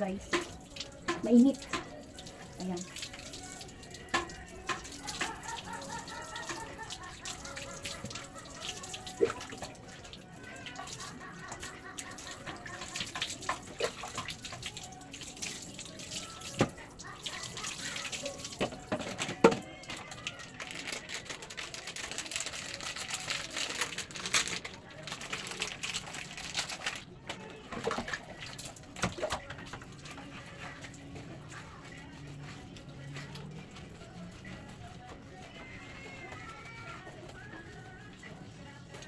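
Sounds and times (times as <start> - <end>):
water splashing and pouring: 0.2 - 27.0.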